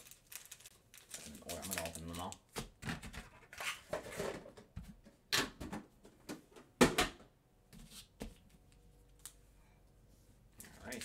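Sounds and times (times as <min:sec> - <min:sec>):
plastic packaging clattering: 0:00.0 - 0:04.5.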